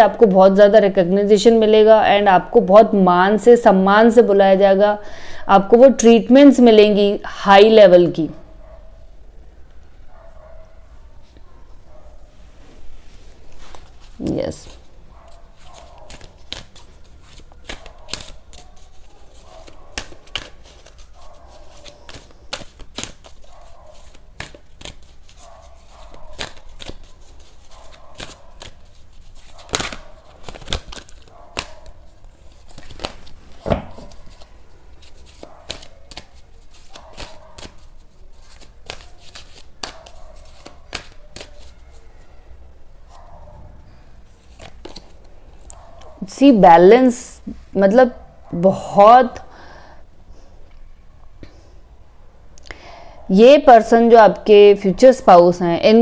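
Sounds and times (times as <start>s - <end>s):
cards shuffled and laid down: 32.6s - 34.5s, 44.4s - 45.2s.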